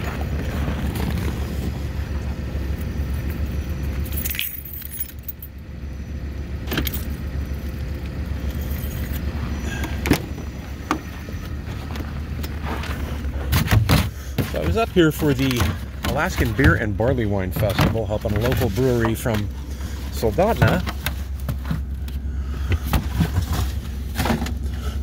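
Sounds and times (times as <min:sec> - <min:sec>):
engine and road rumble: 0:00.0 - 0:25.0
light metallic jingling: 0:02.9 - 0:06.1, 0:06.7 - 0:09.7.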